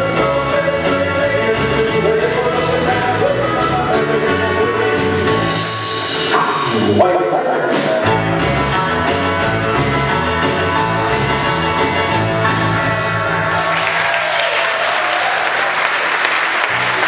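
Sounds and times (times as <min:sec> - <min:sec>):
country rock band playing: 0:00.0 - 0:14.4
audience applause: 0:13.5 - 0:17.0.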